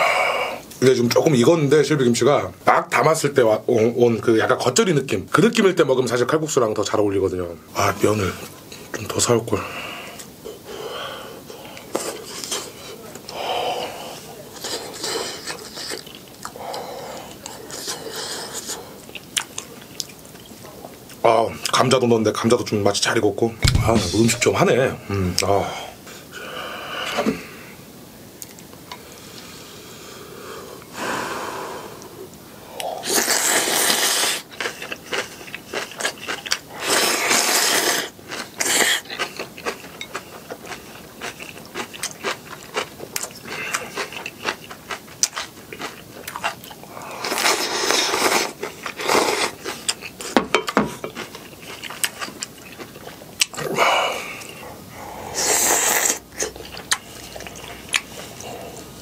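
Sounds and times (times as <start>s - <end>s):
slurping noodles: 13.8s - 19.0s, 32.8s - 39.4s, 46.4s - 50.0s, 53.6s - 59.0s
wet chewing and crunching: 14.5s - 21.8s, 33.1s - 53.7s, 55.6s - 59.0s.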